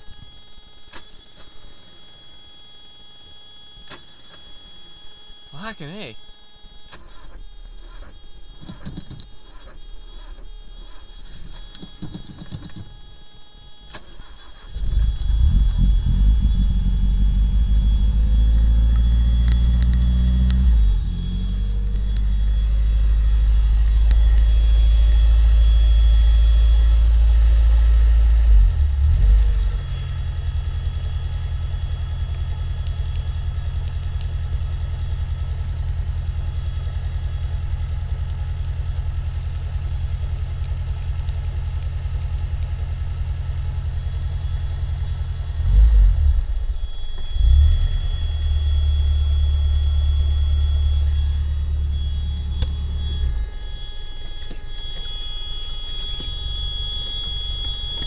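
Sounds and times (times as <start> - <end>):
car engine revving and idling: 14.0 - 58.0.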